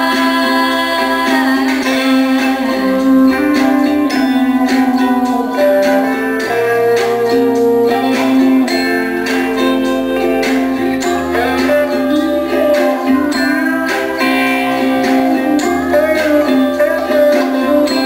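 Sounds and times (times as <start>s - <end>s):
instrumental music with steady beat: 0.0s - 18.0s.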